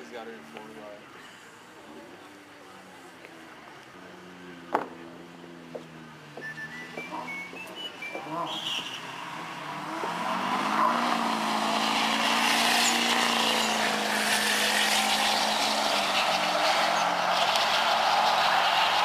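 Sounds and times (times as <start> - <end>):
racing engines at full throttle: 0.0 - 19.0.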